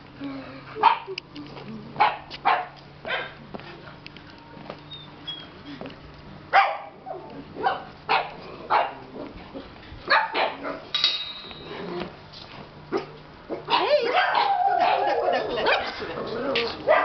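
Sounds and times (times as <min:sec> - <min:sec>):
dogs barking and yelping: 0:02.0 - 0:03.4, 0:06.5 - 0:10.9, 0:12.9 - 0:17.0.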